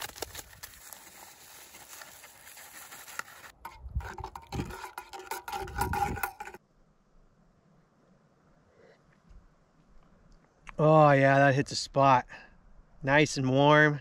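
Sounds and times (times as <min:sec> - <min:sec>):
powder poured into metal mug: 0:01.0 - 0:06.6
spoon stirring in metal mug: 0:03.7 - 0:06.6.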